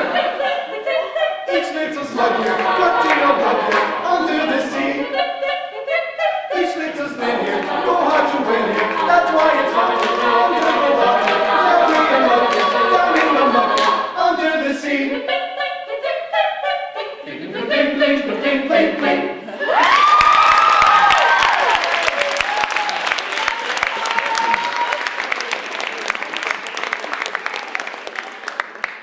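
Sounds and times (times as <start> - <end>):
a cappella group singing in harmony: 0.0 - 19.7.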